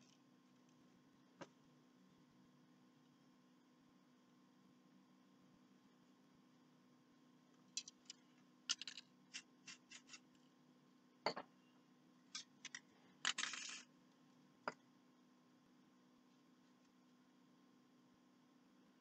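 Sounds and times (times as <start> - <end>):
objects clicking and knocking: 7.8 - 10.2, 12.3 - 13.9.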